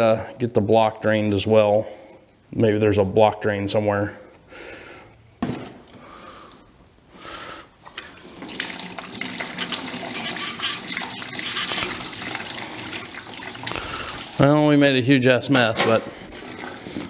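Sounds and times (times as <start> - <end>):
liquid gushing and splashing: 7.9 - 14.8.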